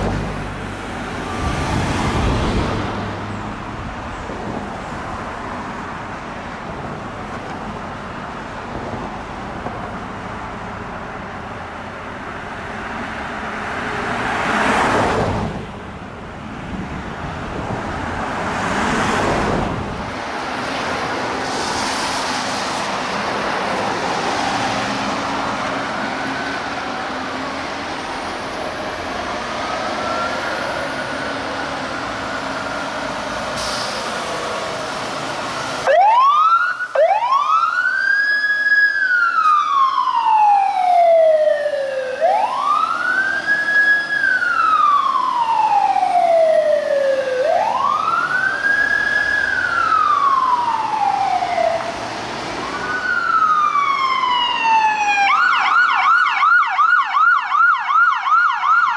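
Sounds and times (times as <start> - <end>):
road traffic: 0.0 - 58.9
fire engine siren wailing: 23.1 - 58.9
second faster siren: 35.8 - 52.0, 52.6 - 58.9.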